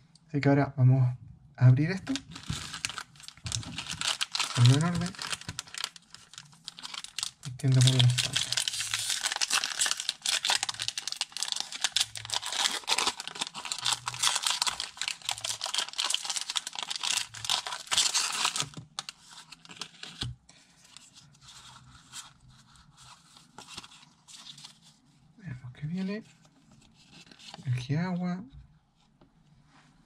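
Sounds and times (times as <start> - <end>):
cards rustling and ticking: 2.0 - 20.3
foil wrapper crinkling and tearing: 2.0 - 20.3.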